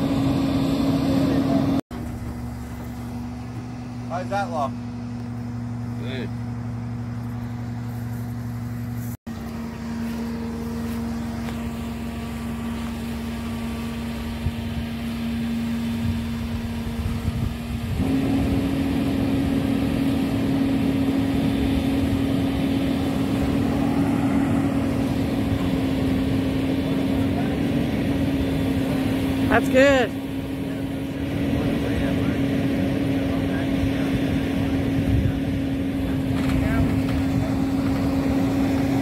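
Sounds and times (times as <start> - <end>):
truck engine running and revving: 0.0 - 39.0.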